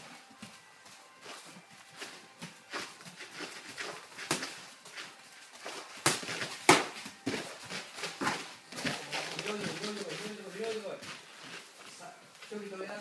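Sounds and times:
feet thudding and shuffling on mat: 0.0s - 13.0s
gloved punches and kicks landing: 4.1s - 4.6s, 5.7s - 7.5s.

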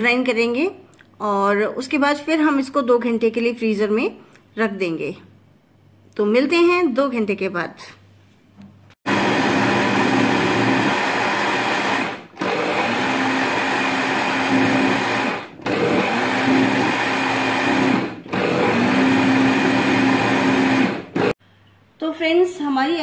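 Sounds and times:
mixer grinder motor running: 9.0s - 21.4s.

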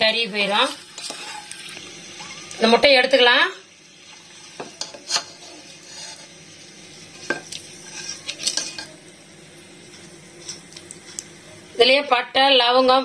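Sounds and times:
oil sizzling: 0.0s - 13.0s
spatula scraping metal pot: 0.6s - 2.4s, 4.1s - 6.4s, 7.1s - 8.9s.

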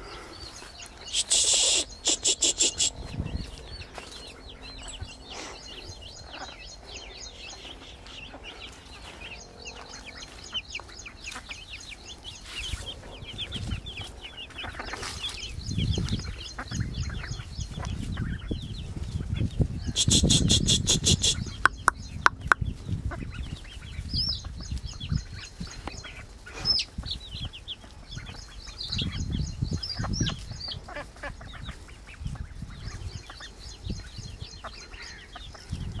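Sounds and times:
harsh bird call: 0.0s - 3.5s, 19.8s - 22.8s
chicks peeping: 0.0s - 36.0s
sharp clicks: 20.1s - 22.6s.

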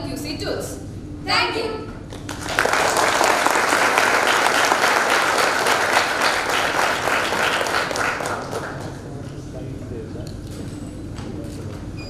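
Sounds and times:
audience applauding: 2.1s - 9.2s.

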